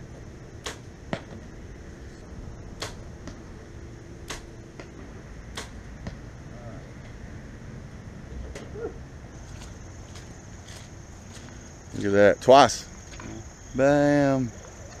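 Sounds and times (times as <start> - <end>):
arrow hitting target: 0.6 - 1.4, 2.8 - 3.4, 4.2 - 6.2
bow string snapping: 4.3 - 4.5.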